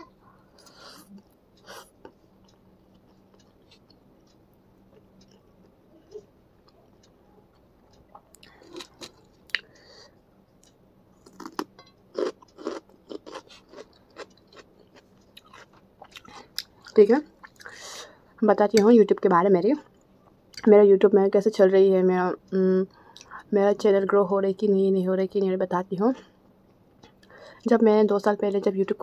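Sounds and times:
person chewing noodles: 0:00.4 - 0:17.8.

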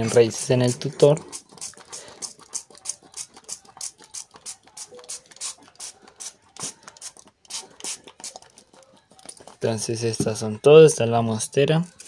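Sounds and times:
spray bottle spritzing: 0:00.3 - 0:08.6.

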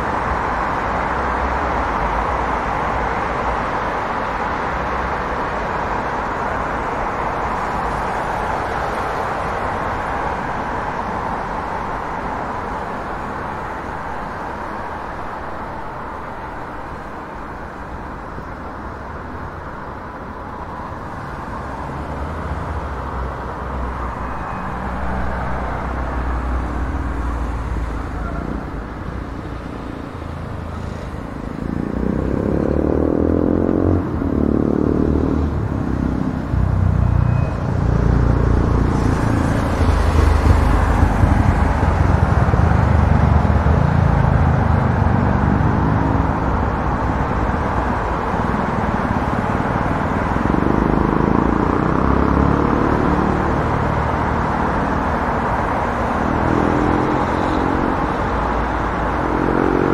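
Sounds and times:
passing vehicle engines: 0:00.0 - 0:59.9
road traffic rumble and hiss: 0:00.0 - 0:59.9.

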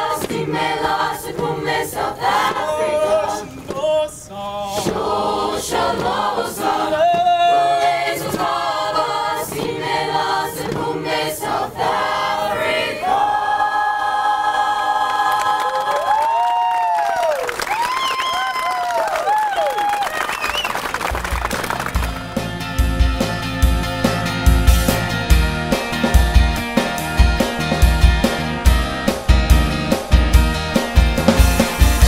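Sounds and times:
mixed choir singing: 0:00.0 - 0:03.7, 0:04.6 - 0:16.1, 0:25.7 - 0:32.0
beat of sharp hits: 0:22.0 - 0:32.0.

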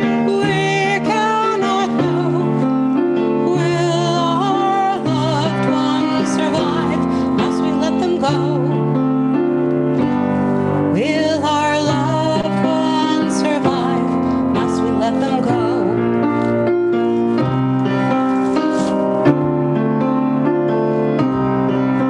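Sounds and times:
woman singing with vibrato: 0:00.0 - 0:02.7, 0:03.4 - 0:08.8, 0:10.9 - 0:16.0
piano chords: 0:00.0 - 0:22.0.

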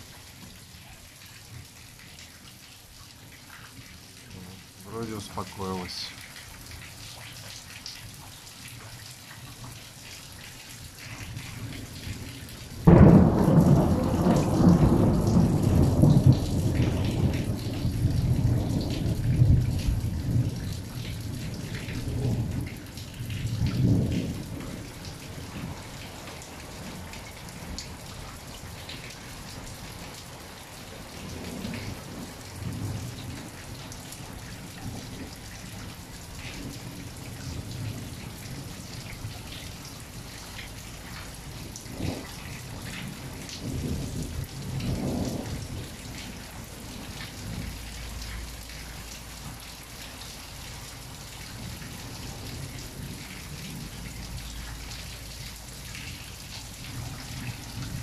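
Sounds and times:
steady rain: 0:00.0 - 0:58.0
thunderclap with deep rumbling: 0:12.8 - 0:25.2, 0:41.6 - 0:46.4.

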